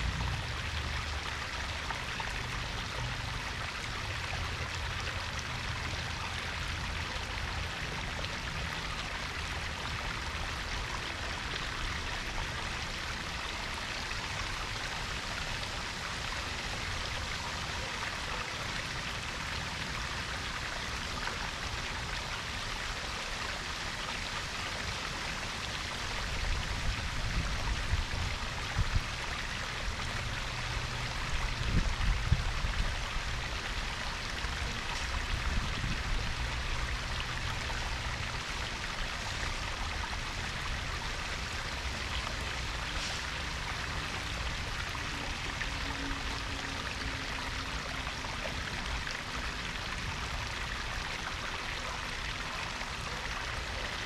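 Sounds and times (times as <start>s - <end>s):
water splashing and trickling: 0.0s - 54.0s.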